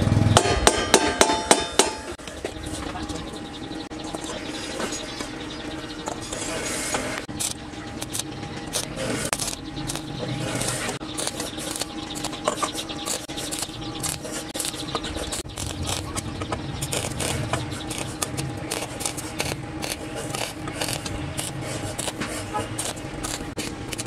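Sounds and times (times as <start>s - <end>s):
metal clicks and scrapes: 6.0s - 24.0s.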